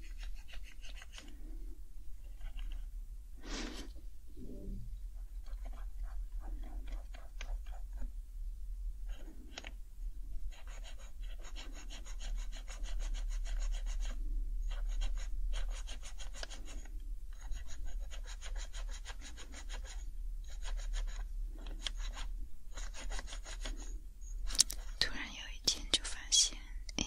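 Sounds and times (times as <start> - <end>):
pad rubbing over keycaps: 10.5 - 23.9.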